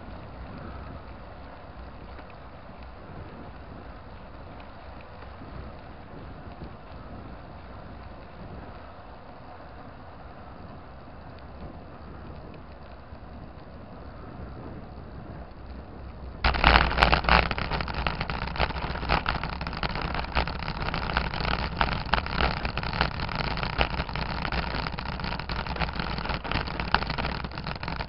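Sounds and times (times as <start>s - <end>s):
bicycle rolling on asphalt: 0.0s - 28.0s
bike rattling over cobblestones: 14.7s - 28.0s.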